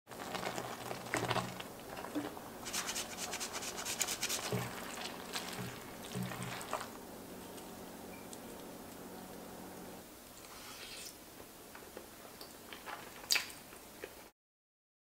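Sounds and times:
spatula stirring spaghetti in broth: 0.2s - 7.0s
cheese grating on a grater: 2.6s - 4.6s.

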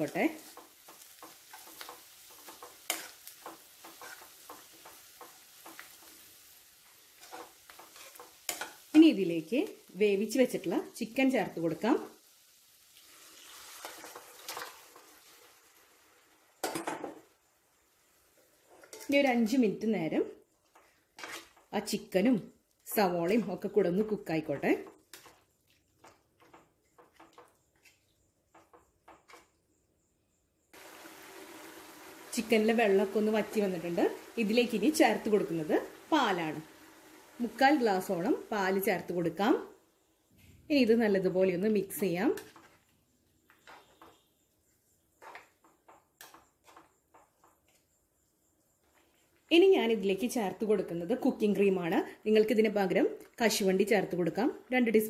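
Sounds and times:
onions sizzling: 0.0s - 28.0s, 30.7s - 48.0s
spatula scraping frying pan: 0.3s - 8.9s, 20.7s - 21.7s, 43.5s - 44.3s, 45.2s - 47.5s.

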